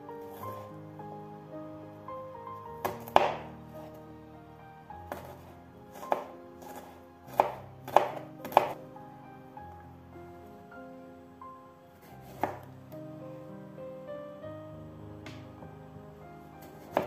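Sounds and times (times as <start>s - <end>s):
knife chopping on cutting board: 6.0s - 8.8s, 12.3s - 12.6s, 16.8s - 17.0s.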